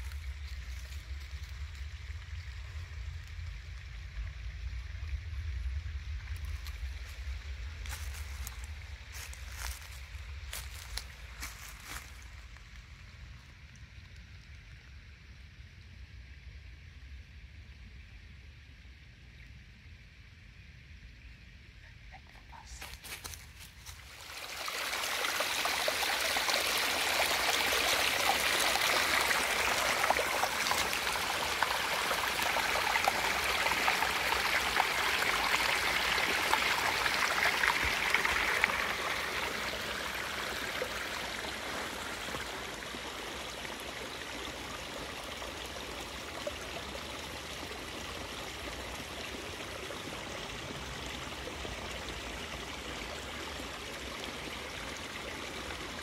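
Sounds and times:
stream water rushing: 0.0s - 1.7s, 23.0s - 56.0s.

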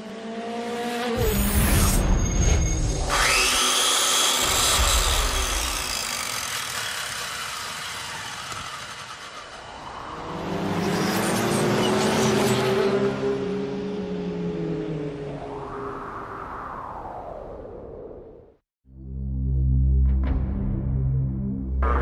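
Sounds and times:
engine-like rising note: 4.8s - 17.8s.

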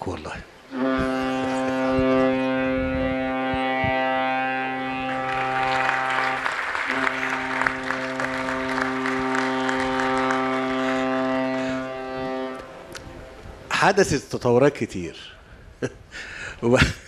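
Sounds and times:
ship's horn blast: 0.7s - 13.7s
audience applauding: 4.9s - 12.7s.

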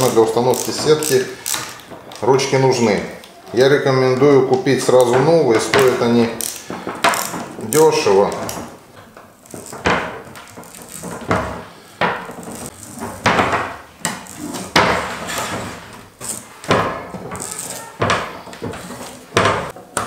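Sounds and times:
rubber cord scraping rasps: 0.0s - 19.8s.

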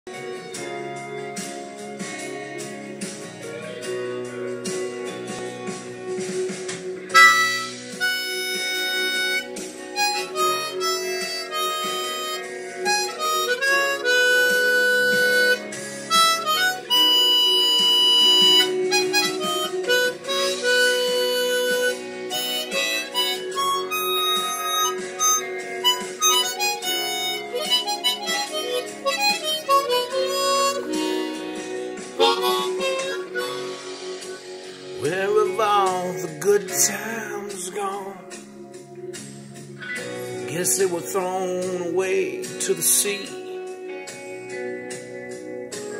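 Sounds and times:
guitar backing track: 0.1s - 45.9s
harmonica melody: 7.1s - 35.7s.

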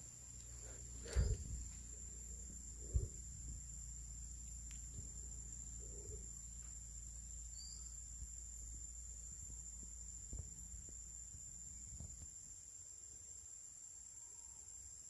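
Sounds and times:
low rumble: 0.0s - 7.5s
high-pitched insect drone: 0.0s - 15.0s.

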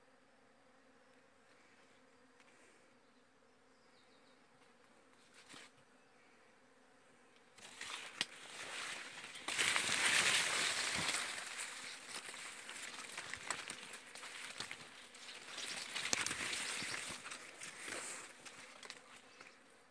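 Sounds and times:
leaves rustling against phone: 7.6s - 19.5s.

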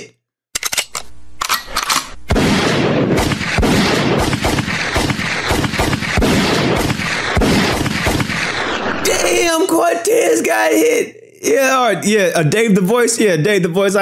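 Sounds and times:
gunfire volley: 2.2s - 9.4s.

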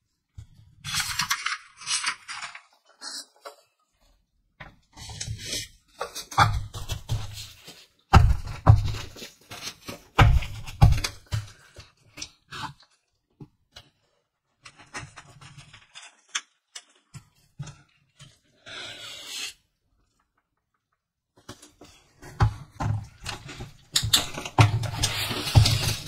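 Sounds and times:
paper sheets rustling: 0.8s - 3.6s, 8.8s - 11.9s, 23.3s - 26.0s.

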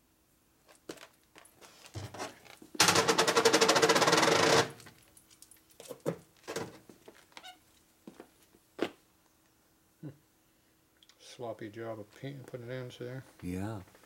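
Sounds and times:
tool rattling rapidly: 2.8s - 4.7s.

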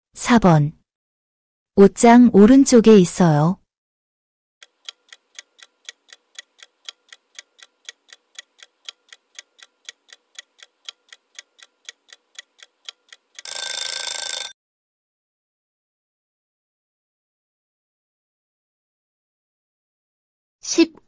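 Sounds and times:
clock ticking: 4.6s - 14.5s
short alarm ringing: 13.4s - 14.5s.

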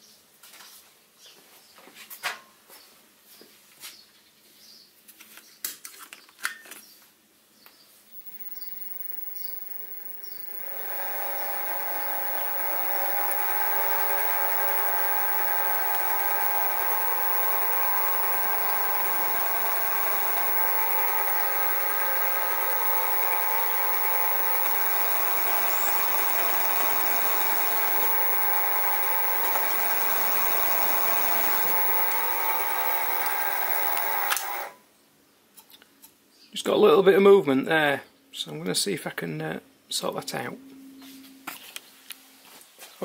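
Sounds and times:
milling machine whine: 8.1s - 34.8s.

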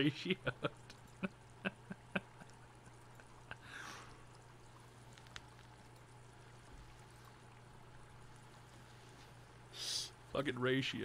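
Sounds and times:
low electrical hum: 0.0s - 11.0s
small clicks: 5.0s - 6.2s.

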